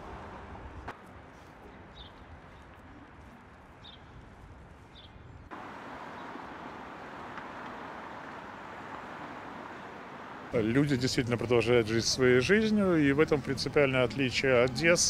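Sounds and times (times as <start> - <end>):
street noise: 0.0 - 15.0
bird chirping: 5.0 - 10.3.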